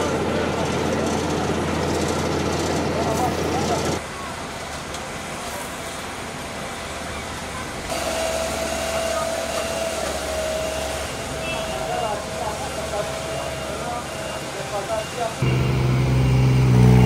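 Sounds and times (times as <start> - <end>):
road roller engine running: 0.0 - 17.0
steady whine: 15.4 - 17.0.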